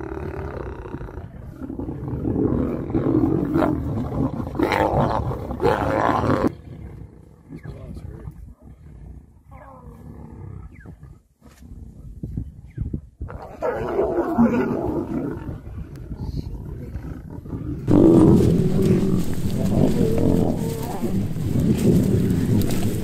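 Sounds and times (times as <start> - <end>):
lions growling and squabbling: 0.0 - 23.0.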